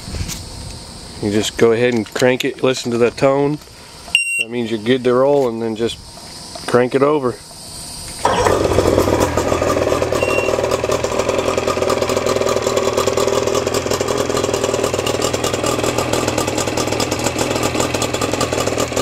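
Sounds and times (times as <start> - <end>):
outboard motor idling: 7.4 - 19.0.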